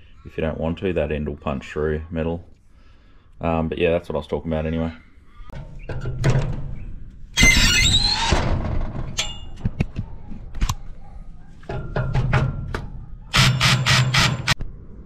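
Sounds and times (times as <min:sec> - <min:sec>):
harsh screech of screw cutting steel: 0:07.4 - 0:08.3, 0:13.3 - 0:14.6
cordless drill motor: 0:13.4 - 0:14.6.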